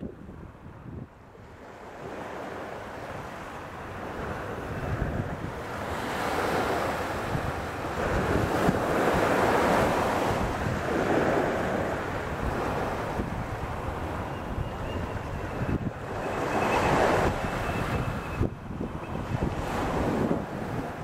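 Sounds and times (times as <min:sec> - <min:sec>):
waves washing up a beach: 0:00.0 - 0:21.0
wind buffeting microphone: 0:00.0 - 0:21.0.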